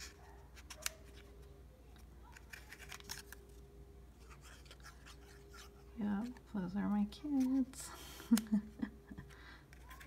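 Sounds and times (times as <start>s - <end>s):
paper rustling and clicks: 0.0s - 1.4s, 2.0s - 3.6s
faint steady hum: 0.0s - 10.0s.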